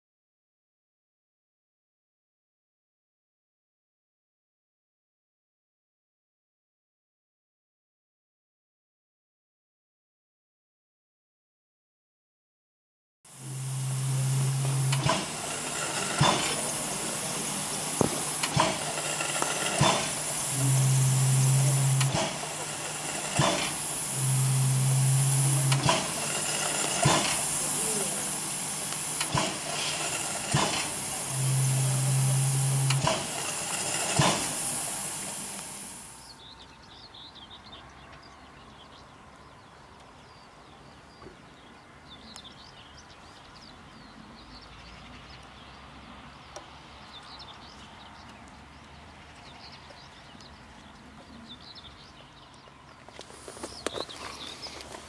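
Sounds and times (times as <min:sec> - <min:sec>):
steam locomotive hissing: 0:13.3 - 0:36.3
faint distant train: 0:13.3 - 0:45.2
low steady hum: 0:13.4 - 0:27.0, 0:31.1 - 0:33.0
sharp clicks: 0:13.4 - 0:35.9
birds chirping: 0:13.4 - 0:45.8, 0:49.5 - 0:55.0.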